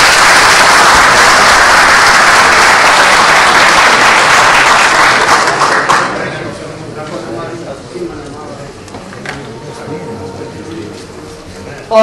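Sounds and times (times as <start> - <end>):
crowd applauding: 0.0 - 6.4.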